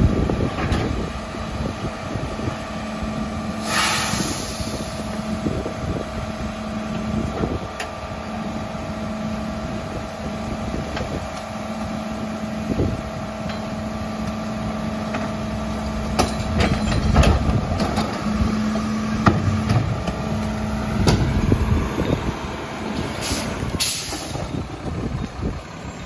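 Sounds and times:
diesel engine idling: 0.0 - 26.0
carts knocking and clattering: 16.1 - 18.3.

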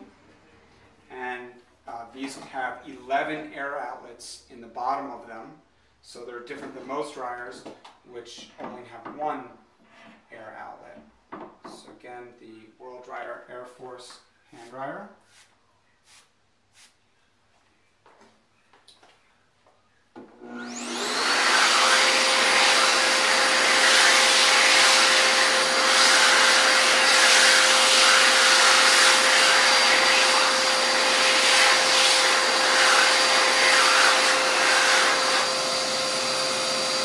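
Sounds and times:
hand dryer blowing: 20.4 - 37.0.

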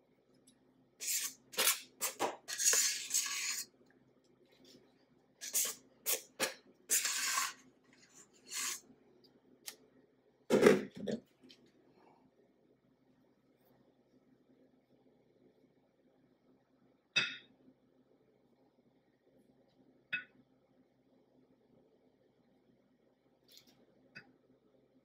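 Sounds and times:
spatula scraping metal bowl: 1.0 - 3.7, 5.4 - 8.8.

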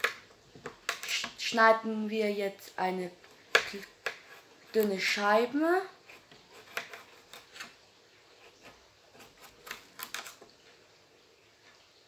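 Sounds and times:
knife slicing cucumber: 3.4 - 5.2, 6.0 - 7.8
blade tapping cutting board: 3.5 - 4.9.

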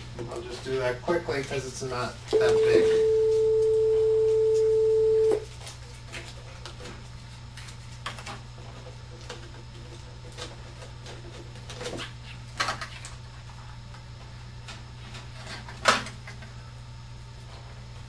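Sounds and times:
loud steady pure tone: 2.3 - 5.4.

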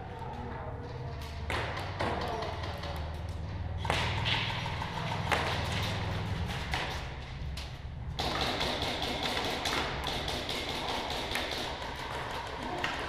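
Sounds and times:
steady low hum: 3.0 - 12.4
airsoft shots: 8.2 - 12.1.

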